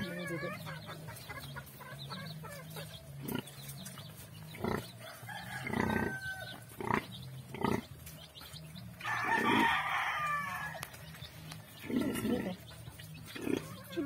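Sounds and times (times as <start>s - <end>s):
piglets squealing: 0.0s - 3.5s
sow grunting: 5.6s - 8.0s, 11.8s - 12.7s, 13.3s - 14.0s.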